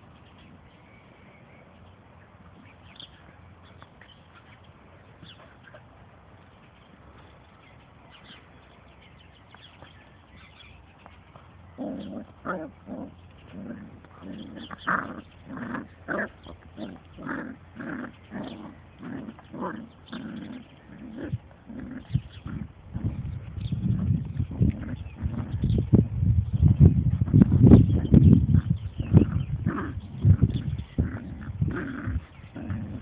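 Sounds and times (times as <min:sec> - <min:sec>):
dog growling: 0:11.7 - 0:23.3, 0:28.6 - 0:33.0.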